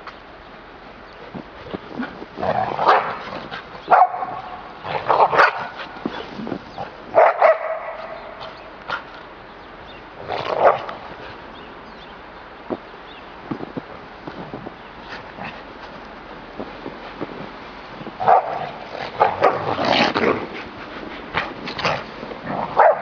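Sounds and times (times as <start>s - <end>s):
dogs barking: 2.0s - 6.2s, 6.8s - 9.2s, 10.2s - 11.1s, 18.2s - 19.9s, 22.5s - 23.0s.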